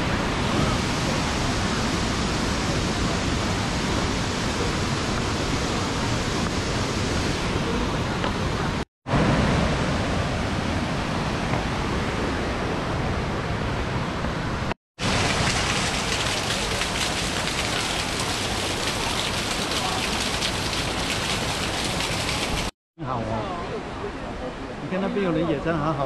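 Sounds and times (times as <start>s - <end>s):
waterfall splashing onto rock: 15.0s - 22.7s.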